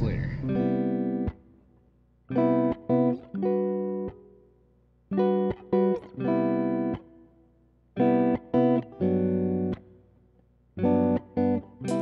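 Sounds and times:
guitar plucked chords: 0.0s - 1.6s, 2.3s - 4.4s, 5.1s - 7.3s, 8.0s - 10.0s, 10.8s - 12.0s.

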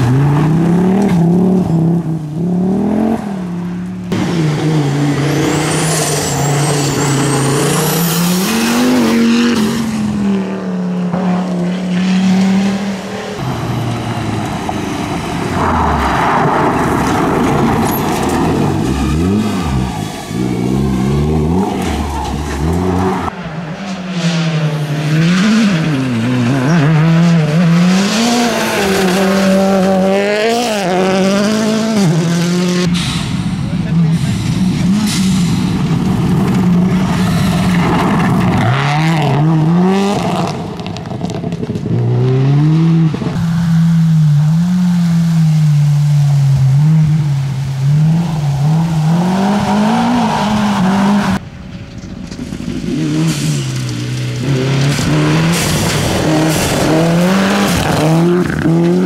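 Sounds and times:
rally car engines revving: 0.0s - 59.0s
gravel spraying from tyres: 13.5s - 26.7s, 43.4s - 58.8s.

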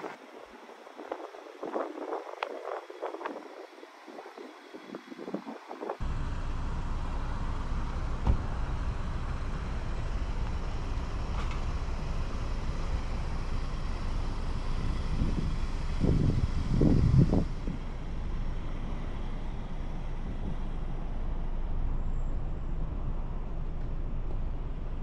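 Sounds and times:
road and tyre noise: 0.0s - 25.0s
low thumps: 8.2s - 8.8s.

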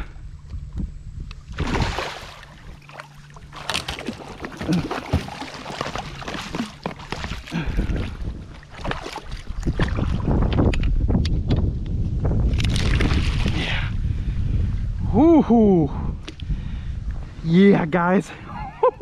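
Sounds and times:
fish thrashing and splashing: 1.5s - 10.2s, 12.5s - 13.6s.

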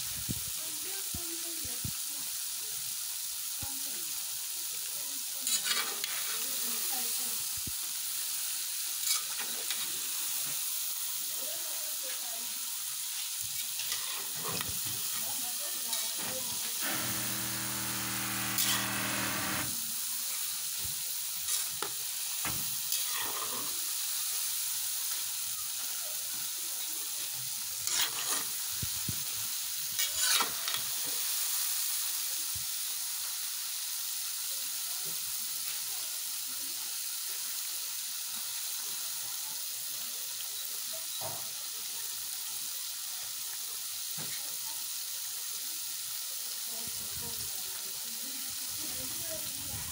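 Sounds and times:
dough sizzling in hot oil: 0.0s - 49.9s
metal spoon scraping pot: 16.9s - 19.7s, 27.9s - 28.5s, 30.0s - 30.8s.

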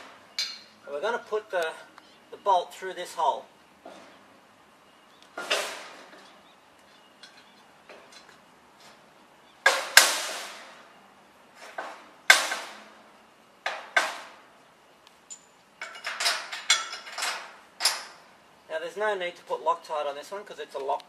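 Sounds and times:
metal parts knocking and clinking: 0.4s - 0.7s, 15.3s - 18.2s.

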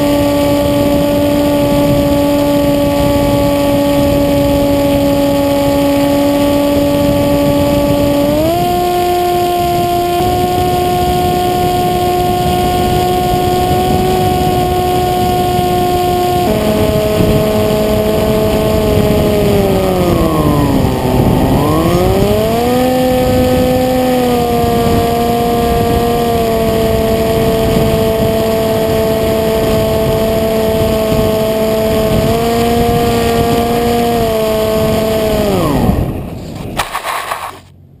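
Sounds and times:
wind rushing over microphone: 0.0s - 37.7s
electric motor and propeller running: 0.0s - 37.8s
scraping rustle in grass: 36.4s - 37.7s.

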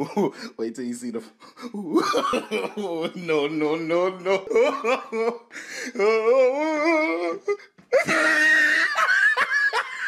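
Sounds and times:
woman squealing: 8.0s - 9.3s
woman laughing: 8.0s - 10.0s.

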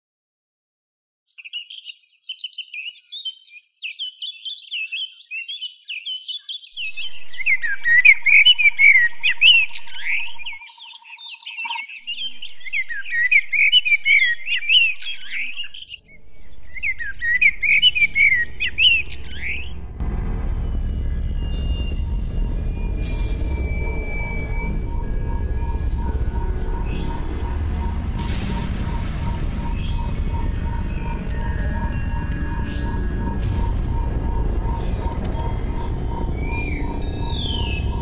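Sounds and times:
birds chirping: 1.3s - 20.0s, 21.0s - 38.0s
low rumble: 6.8s - 10.5s, 12.1s - 38.0s
steady high trill: 6.8s - 10.5s, 12.1s - 38.0s.

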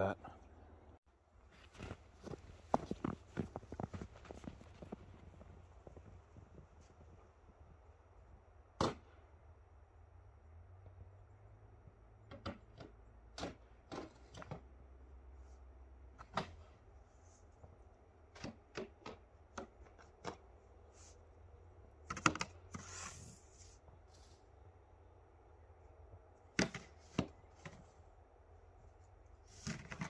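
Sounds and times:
snow shovel scraping and knocking: 1.5s - 6.1s.

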